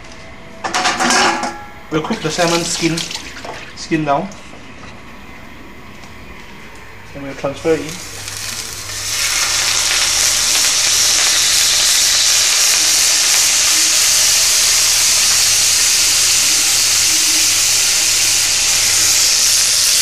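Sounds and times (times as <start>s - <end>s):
fish sizzling in a pan: 8.0s - 20.0s.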